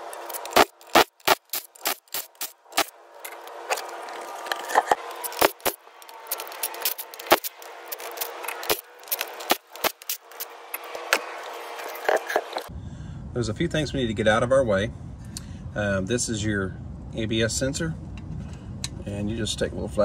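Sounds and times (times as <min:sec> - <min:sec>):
impact wrench whirring: 0:00.0 - 0:12.6.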